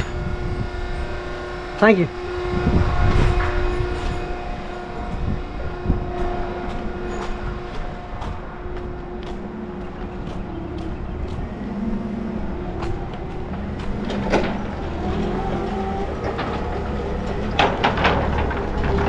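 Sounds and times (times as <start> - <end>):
machinery engine drone: 0.0 - 19.0
footsteps on dirt: 3.4 - 16.2.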